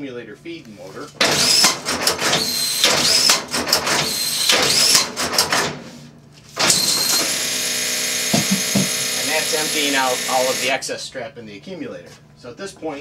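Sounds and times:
machine clattering and rustling: 1.2s - 5.8s
motor whine: 6.6s - 10.8s.

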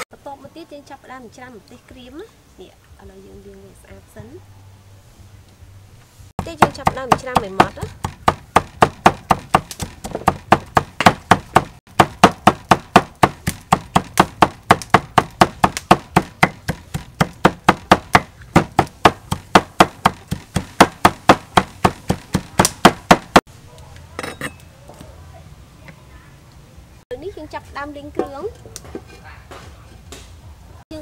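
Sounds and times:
cleaver chopping on wooden board: 6.4s - 23.4s.

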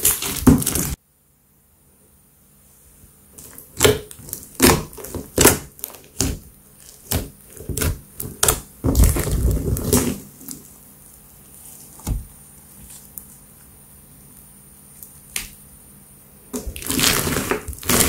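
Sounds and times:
slime crackling: 3.3s - 10.7s, 16.5s - 18.0s.

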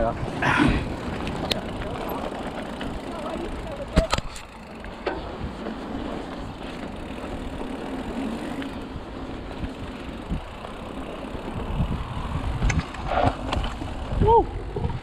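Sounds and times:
bike tyres rolling on dirt: 0.0s - 15.0s
bike knocking over bumps: 0.5s - 8.8s
wind on microphone: 11.4s - 15.0s.

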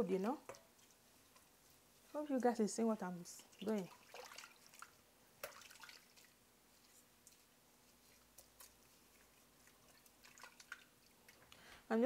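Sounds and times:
small water splashes: 3.3s - 6.4s, 8.4s - 11.4s
wet squelching of hand squeezing pulp: 3.4s - 11.4s.

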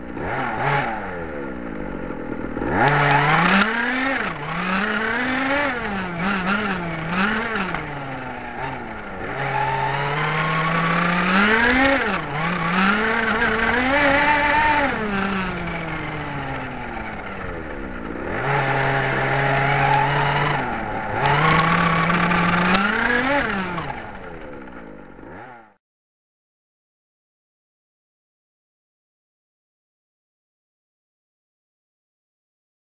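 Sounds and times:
small two-stroke engine revving: 0.0s - 25.8s.

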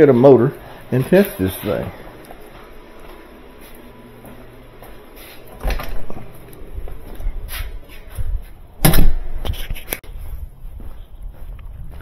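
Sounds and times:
door opening and shutting: 5.4s - 6.6s, 8.8s - 9.5s.

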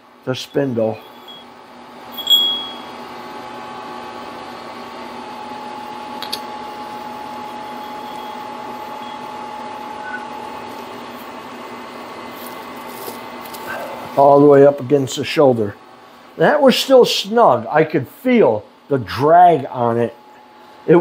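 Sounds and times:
steady tonal hum: 0.3s - 3.5s, 6.7s - 18.3s.

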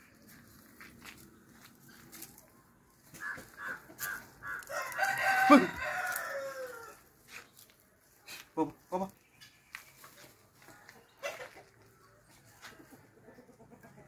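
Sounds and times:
turkeys calling: 3.0s - 6.9s.

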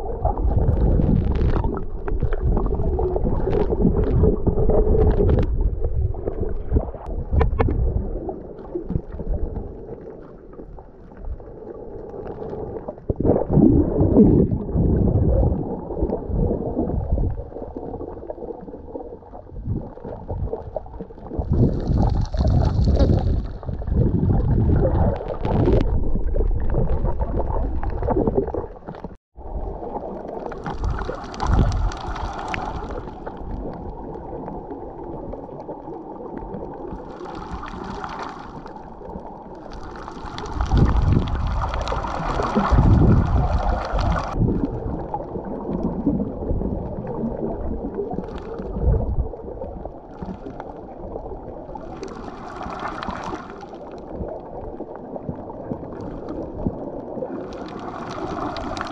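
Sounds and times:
underwater gurgling wash: 0.0s - 58.9s
water hissing and splashing: 30.5s - 33.3s, 39.7s - 44.4s, 57.4s - 58.9s.

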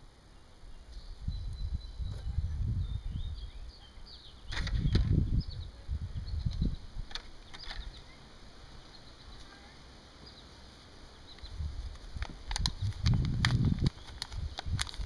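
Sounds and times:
small birds chirping: 0.0s - 15.0s
hands rustling potting soil: 11.2s - 15.0s.

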